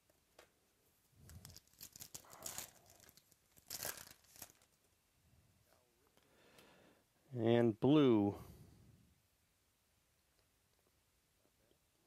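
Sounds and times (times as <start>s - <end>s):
foil wrapper crinkling and tearing: 1.2s - 4.8s.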